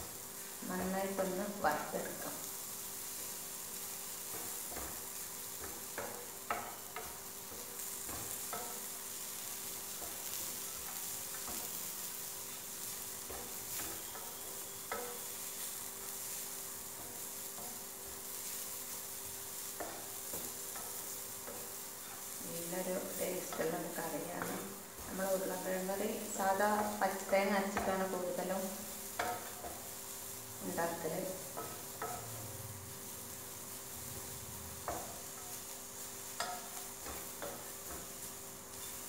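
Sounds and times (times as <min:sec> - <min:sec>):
food sizzling in a pan: 0:00.0 - 0:39.0
wooden spatula scraping a pan: 0:03.1 - 0:39.0.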